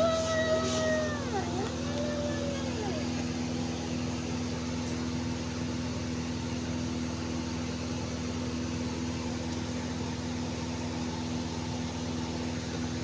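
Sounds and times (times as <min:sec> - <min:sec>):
electric motor hum: 0:00.0 - 0:06.9.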